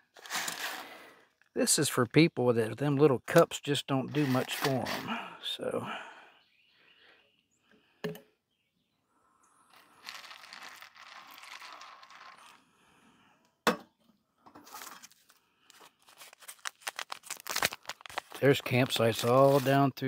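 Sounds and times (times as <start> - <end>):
paper packet crinkling: 4.1 - 5.0, 9.8 - 12.6, 14.6 - 20.0.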